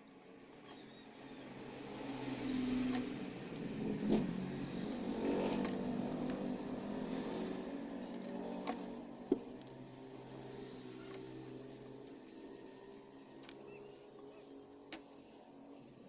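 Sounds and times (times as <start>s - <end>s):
vehicle engine revving: 1.6s - 12.1s.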